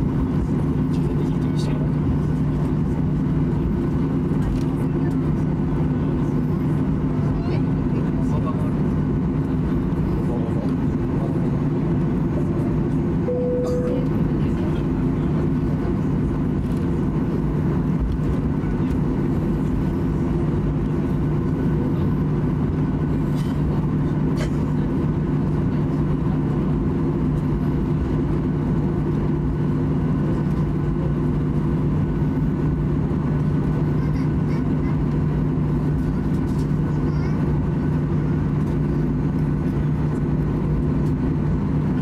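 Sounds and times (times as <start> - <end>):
jet engines droning: 0.0 - 42.0
brief tone: 13.3 - 14.2.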